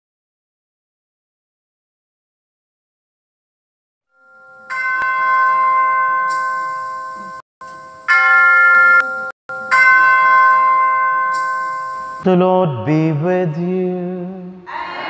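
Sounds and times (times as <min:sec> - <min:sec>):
struck bells ringing: 0:04.1 - 0:12.3.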